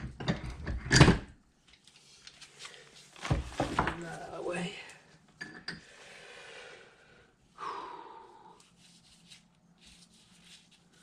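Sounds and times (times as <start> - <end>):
person sniffing and breathing: 5.9 - 9.4.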